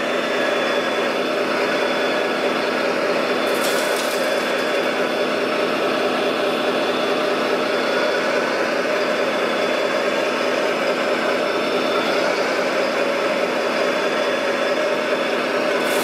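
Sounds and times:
model loader mechanical hum: 0.0 - 16.0
gravel pouring into truck bed: 3.4 - 5.1.

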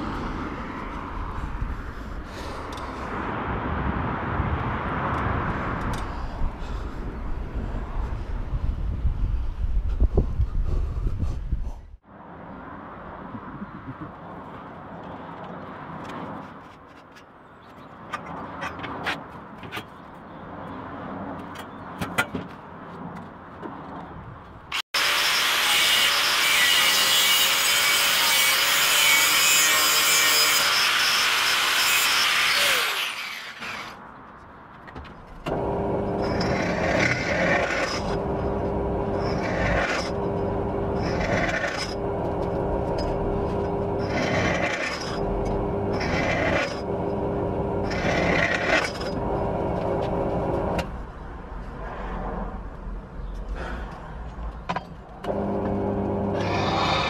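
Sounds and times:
angle grinder cutting steel: 24.7 - 34.0, 35.6 - 50.0, 55.3 - 57.0.

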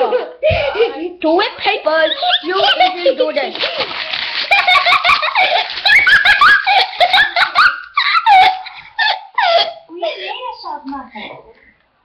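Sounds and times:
child laughing and squealing: 2.0 - 3.0, 4.6 - 9.8.

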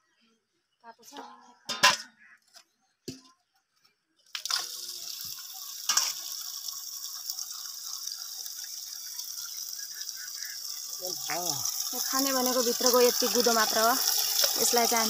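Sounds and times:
water pouring into steel pot: 4.4 - 15.0.

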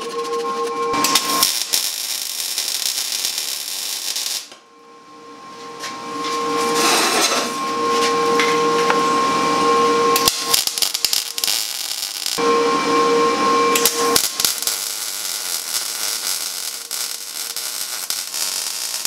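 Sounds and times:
faint steady tones: 0.0 - 6.8
welder arc crackling and hissing: 0.9 - 4.6, 9.9 - 12.4, 13.3 - 19.0.

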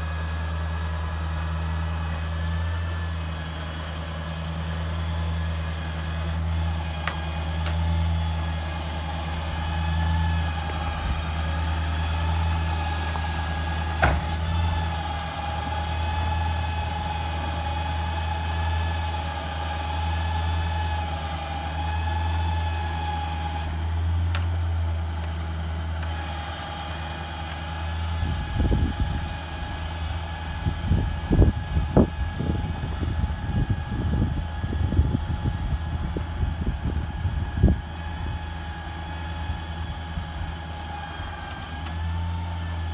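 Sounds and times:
hydraulic whine: 0.0 - 42.9
truck engine running: 0.0 - 42.9.

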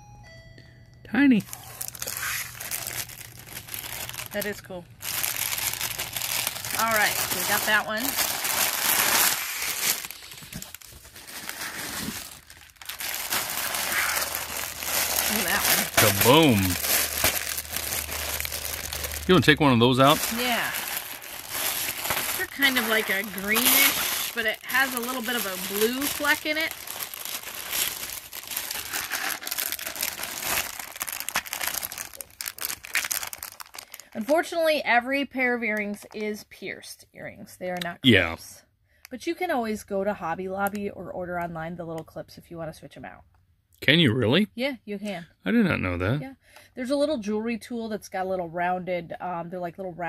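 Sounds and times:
plastic bags crinkling: 1.4 - 34.6.

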